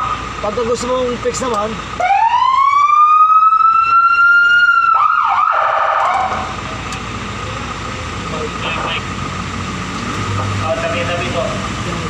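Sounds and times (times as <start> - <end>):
electronic siren wailing and yelping: 2.0 - 6.6.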